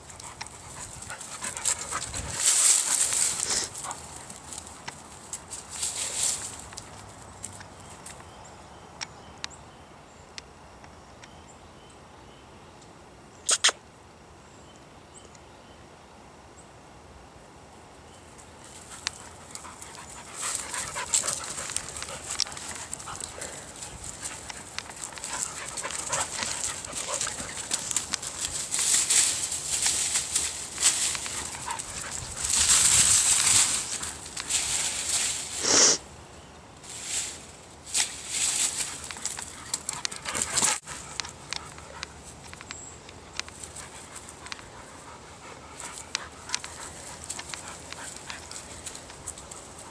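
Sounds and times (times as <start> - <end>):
paws scuffling through grass: 0.0 - 8.2, 18.5 - 36.0, 36.8 - 49.9.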